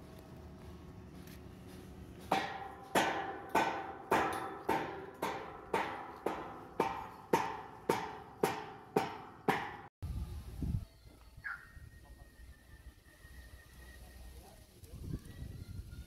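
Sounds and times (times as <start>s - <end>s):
hand hammer striking: 2.3s - 9.9s.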